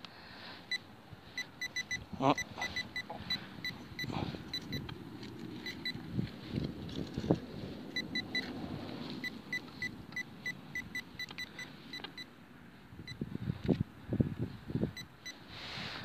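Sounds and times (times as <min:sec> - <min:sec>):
metal detector beeps: 0:00.7 - 0:06.6, 0:07.9 - 0:08.5, 0:09.2 - 0:12.3, 0:15.0 - 0:15.4.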